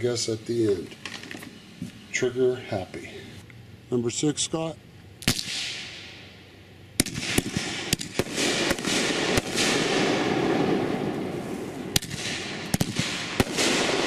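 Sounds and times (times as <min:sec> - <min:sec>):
firework bangs: 0:07.0 - 0:14.0
firework crackling hiss: 0:07.0 - 0:14.0.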